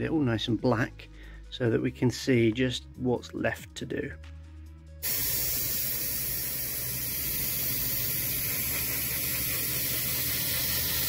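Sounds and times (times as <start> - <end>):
airbrush spraying hiss: 5.0 - 11.0.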